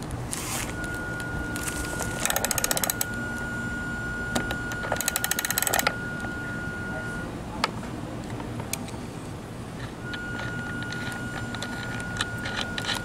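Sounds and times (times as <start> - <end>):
ratchet wrench clicking: 2.2 - 3.1, 4.9 - 5.9.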